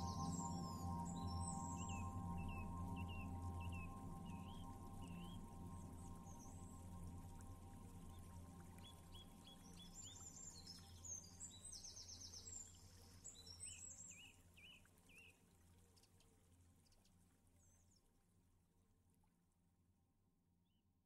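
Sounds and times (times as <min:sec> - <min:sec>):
low steady hum: 0:00.0 - 0:13.2.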